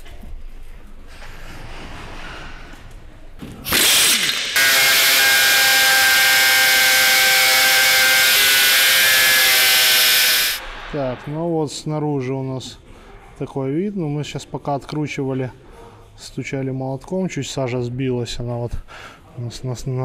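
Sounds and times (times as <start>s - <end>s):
angle grinder cutting metal: 3.7s - 11.0s.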